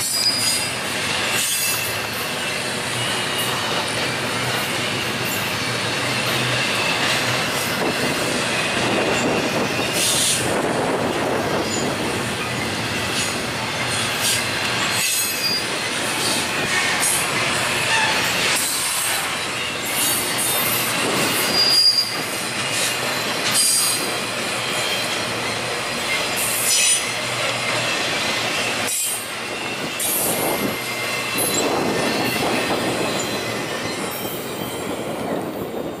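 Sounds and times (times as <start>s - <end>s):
freight train wheels clattering: 0.0s - 36.0s
train wheel squeals: 0.0s - 36.0s.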